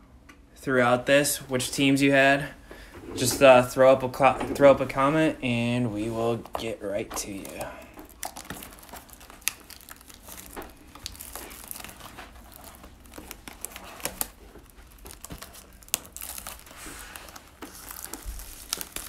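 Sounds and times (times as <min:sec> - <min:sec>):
plastic shrink-wrap crinkling: 0:04.2 - 0:19.0.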